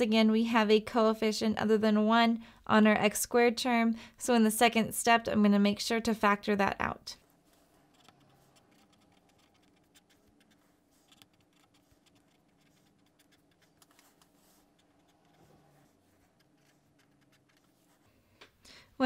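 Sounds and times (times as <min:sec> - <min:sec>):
faint room hum: 0:00.0 - 0:19.0
pen writing on paper: 0:07.9 - 0:18.0.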